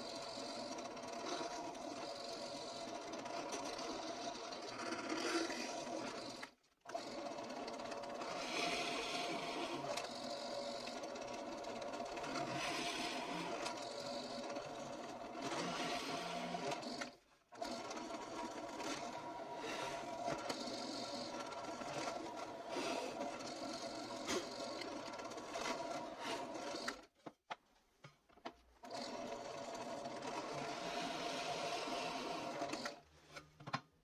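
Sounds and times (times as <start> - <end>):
drill press boring into wood: 7.7 - 11.0, 11.7 - 14.6, 15.2 - 17.2.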